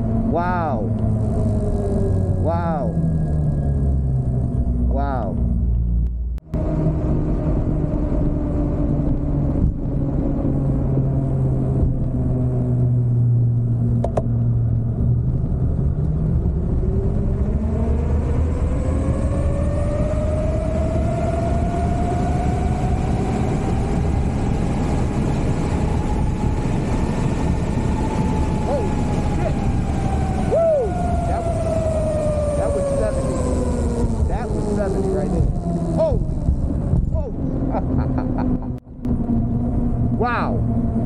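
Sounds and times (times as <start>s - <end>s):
electric motorbike motor whining: 0.0s - 4.9s, 15.4s - 38.5s
wind rumble on microphone: 0.0s - 41.0s.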